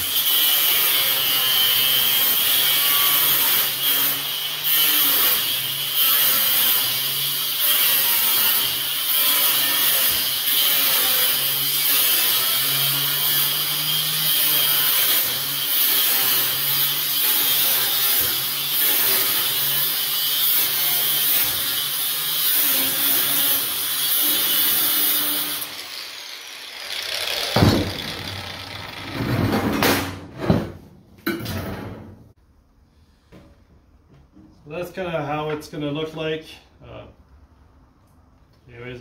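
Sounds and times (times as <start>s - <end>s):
angle grinder cutting steel mesh: 0.0s - 29.5s.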